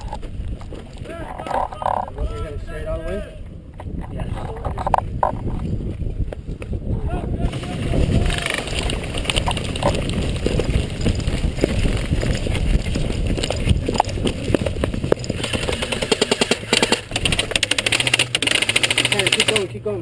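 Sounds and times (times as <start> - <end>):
running footsteps: 0.0 - 2.7, 7.5 - 19.6
wind rumble: 0.0 - 19.0
gear knocking: 8.1 - 19.7
airsoft rifle full-auto bursts: 15.4 - 19.7.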